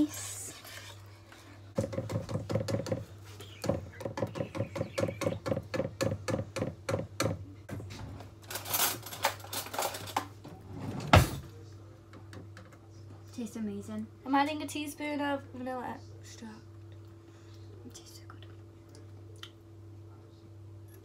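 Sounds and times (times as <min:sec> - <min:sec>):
scraping round a bowl: 0:00.0 - 0:01.9.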